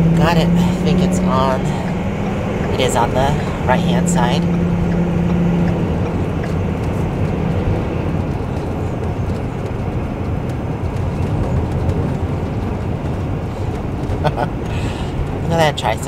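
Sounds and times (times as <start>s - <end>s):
engine and road rumble: 0.0s - 16.0s.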